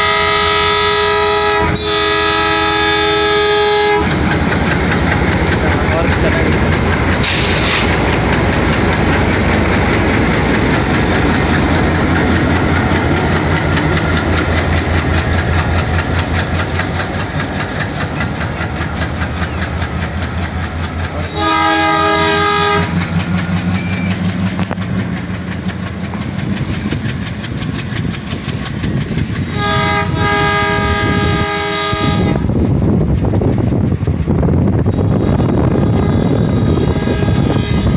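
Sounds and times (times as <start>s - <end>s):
locomotive horn blasts: 0.0s - 4.1s, 21.2s - 23.1s, 29.4s - 32.4s, 35.2s - 37.9s
diesel locomotive engine chugging: 0.0s - 37.9s
wheels clacking over rail joints: 3.5s - 31.9s.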